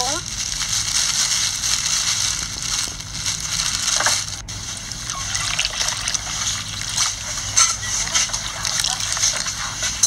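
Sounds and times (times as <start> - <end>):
liquid trickling and splashing: 4.8 - 9.6.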